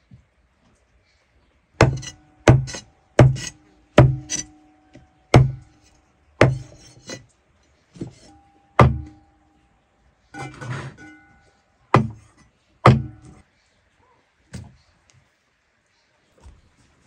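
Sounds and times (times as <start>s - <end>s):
axe chopping wood: 1.8s - 4.5s, 5.4s - 5.7s, 6.4s - 7.2s, 8.8s - 9.2s, 12.0s - 13.4s.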